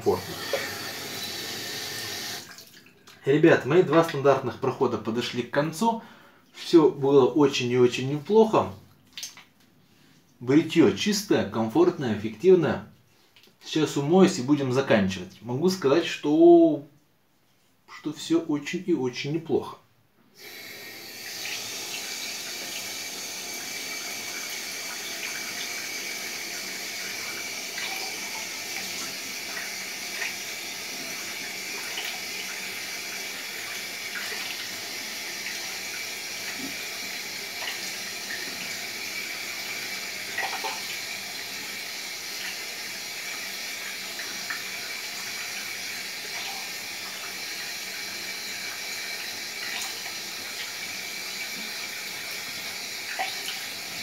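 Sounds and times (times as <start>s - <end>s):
tap running into a sink: 0.1s - 2.7s, 40.3s - 41.2s
water splashes: 2.4s - 3.2s, 8.9s - 9.5s, 26.6s - 38.9s, 39.5s - 41.2s, 42.2s - 54.0s.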